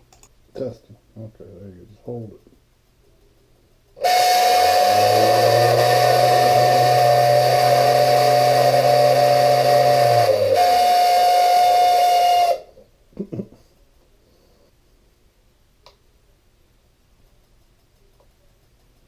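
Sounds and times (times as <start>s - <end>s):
hiss: 4.0s - 12.7s
low motor hum: 4.6s - 10.6s
motor whining: 4.6s - 10.6s.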